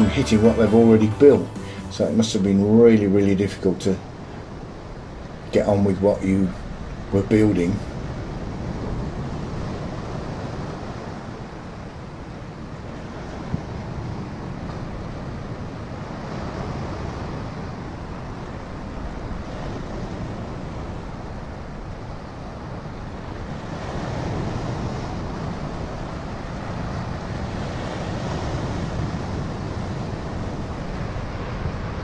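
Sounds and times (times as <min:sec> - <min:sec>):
surf: 0:00.0 - 0:11.6
wind: 0:00.0 - 0:32.0.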